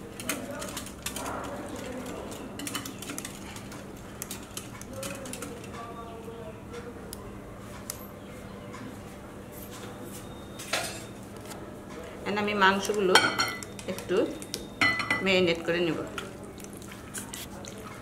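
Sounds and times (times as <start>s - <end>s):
whisk clicking and scraping bowl: 0.2s - 5.7s.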